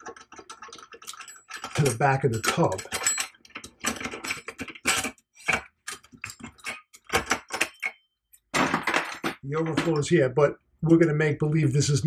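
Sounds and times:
metal rod rattling in tube: 0.0 - 7.8
metal clicking and clattering: 0.0 - 8.0.

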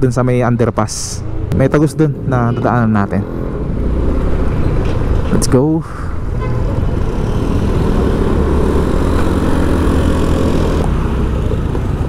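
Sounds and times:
road noise: 0.0 - 12.0
vehicle engine running: 6.7 - 12.0.

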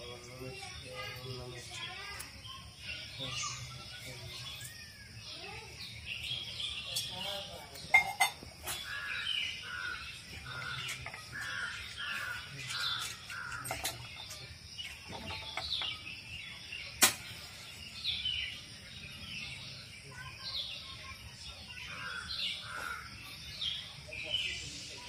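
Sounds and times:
birds chirping: 0.0 - 25.0
crows cawing: 8.8 - 13.8, 21.9 - 23.1.

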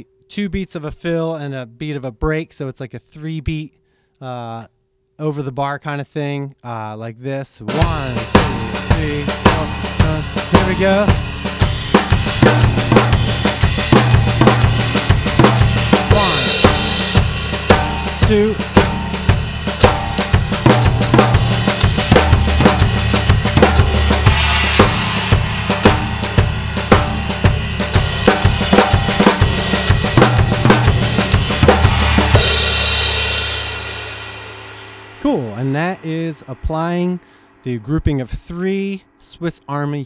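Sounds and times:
drum kit playing: 7.7 - 39.8
cymbal wash: 7.8 - 39.2.

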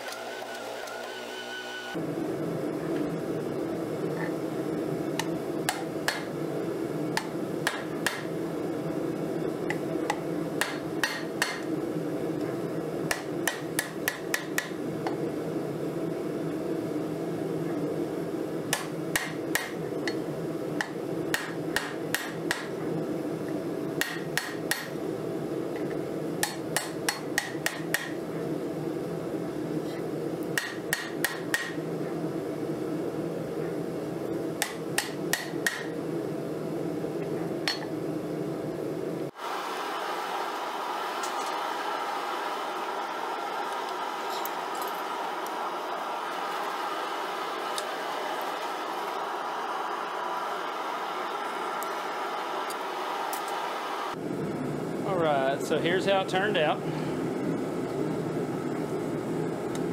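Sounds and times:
steady low hum: 1.9 - 59.9
hammer striking steel on anvil: 5.7 - 6.3, 7.2 - 8.3, 10.6 - 11.6, 13.1 - 14.8, 18.7 - 20.2, 20.8 - 22.7, 24.0 - 25.0, 26.4 - 28.2, 30.6 - 31.8, 34.6 - 35.9.

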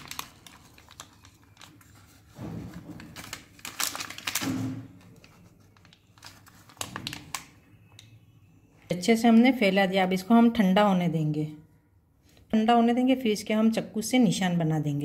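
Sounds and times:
paper crinkling: 0.0 - 7.6.

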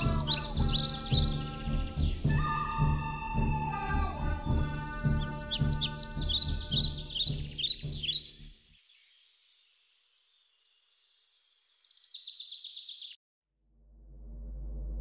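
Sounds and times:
birds chirping: 0.0 - 13.2
low hum: 13.6 - 15.0.

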